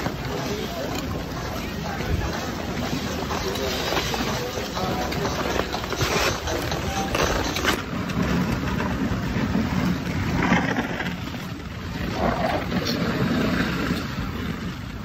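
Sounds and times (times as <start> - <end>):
faint voices of skaters: 0.0 - 15.0.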